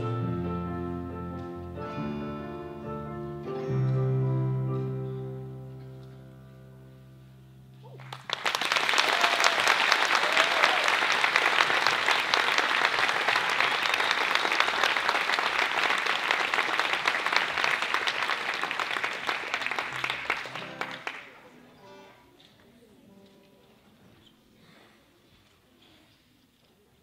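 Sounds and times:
music chord: 0:00.0 - 0:07.8
audience applauding: 0:07.9 - 0:21.5.

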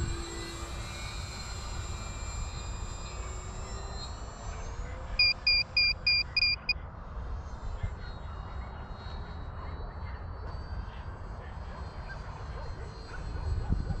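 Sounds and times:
distant model airplane motor whine: 0:00.0 - 0:06.2
short electronic beeps: 0:05.2 - 0:06.8
wind rumbling on microphone: 0:13.4 - 0:14.0.

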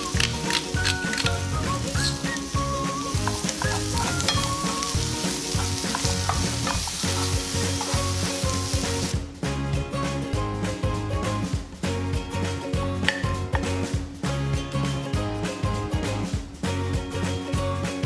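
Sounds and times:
vegetables sizzling in a frying pan: 0:00.0 - 0:09.2
background music: 0:00.0 - 0:18.0
wooden spoon stirring: 0:01.9 - 0:08.5.

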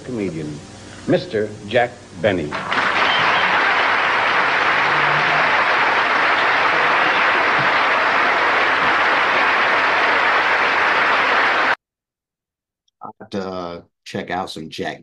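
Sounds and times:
large audience applauding: 0:02.5 - 0:11.8.

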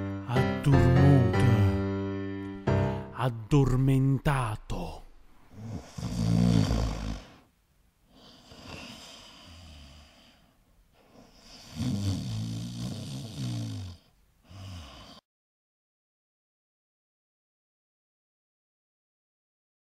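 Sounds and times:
man imitating snoring: 0:05.5 - 0:07.5, 0:08.2 - 0:10.2, 0:11.3 - 0:15.2.

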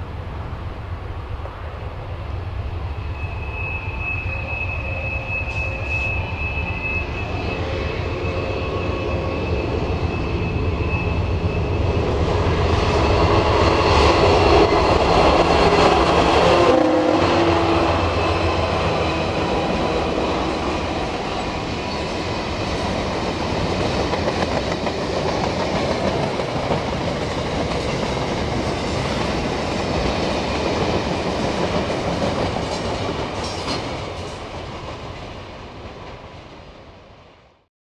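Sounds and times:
diesel locomotive engines: 0:00.0 - 0:37.6
thin high whine: 0:02.8 - 0:14.7
train wheels clattering: 0:18.0 - 0:35.3.

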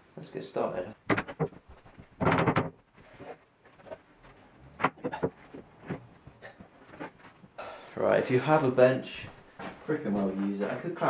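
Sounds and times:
desk knocks and bumps: 0:01.1 - 0:04.0, 0:04.8 - 0:07.2.

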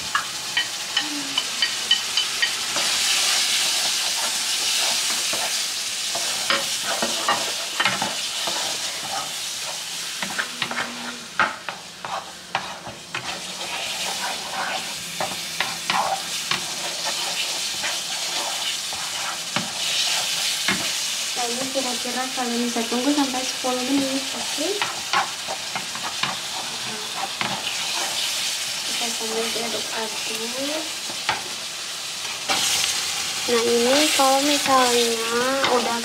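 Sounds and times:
sauce sizzling in a frying pan: 0:00.0 - 0:36.0
wooden utensil scraping a pan: 0:01.6 - 0:21.0.

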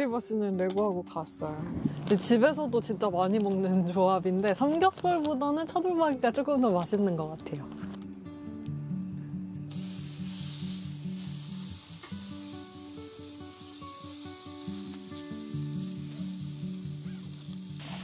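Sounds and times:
meat sizzling in a pan: 0:09.7 - 0:18.0.

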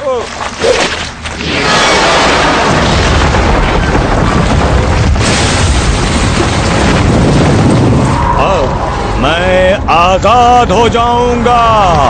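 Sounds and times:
cartoon explosion rumbling blast: 0:01.4 - 0:08.7.

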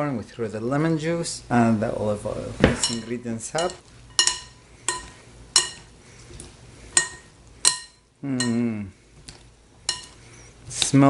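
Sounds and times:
spoon clinking on glass bowl: 0:02.8 - 0:05.9, 0:07.0 - 0:08.6, 0:09.9 - 0:10.2.

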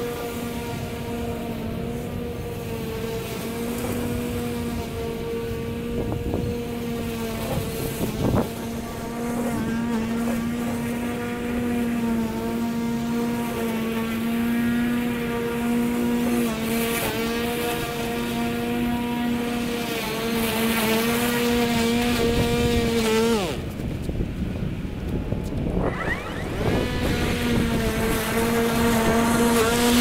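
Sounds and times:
electric lawn mower whining: 0:00.0 - 0:30.0.

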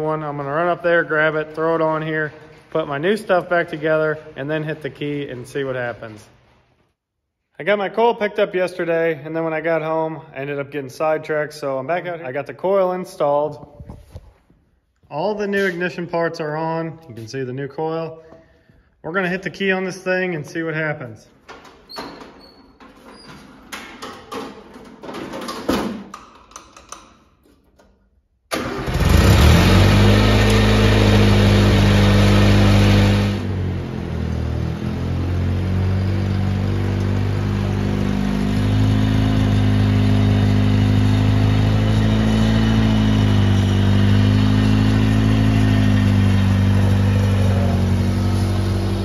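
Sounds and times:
tractor engine running: 0:28.5 - 0:49.0.

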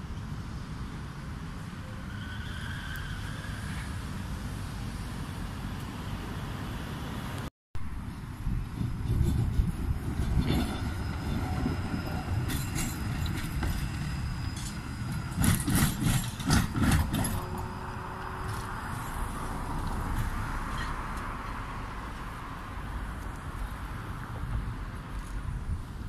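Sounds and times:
tram low rumble: 0:00.0 - 0:26.0
tram wheels knocking on rail joints: 0:08.4 - 0:18.8.

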